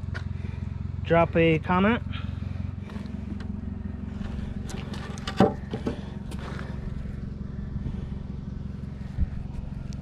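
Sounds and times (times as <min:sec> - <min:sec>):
vehicle engine idling hum: 0:00.0 - 0:10.0
metal frame knocks and clanks: 0:04.7 - 0:06.1.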